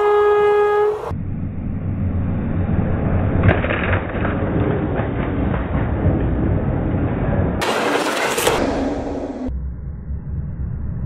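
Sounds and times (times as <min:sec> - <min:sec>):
train horn: 0:00.0 - 0:01.1
train wheels rumbling on rail: 0:02.4 - 0:08.8.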